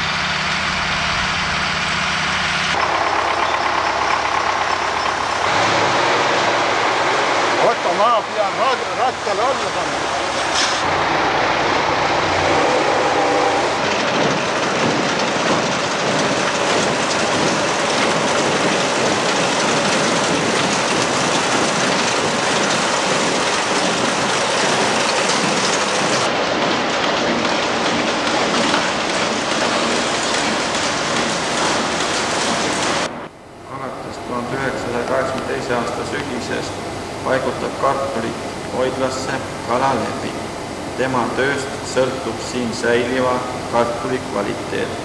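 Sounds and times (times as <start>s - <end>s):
machinery rattling: 0.0s - 33.2s.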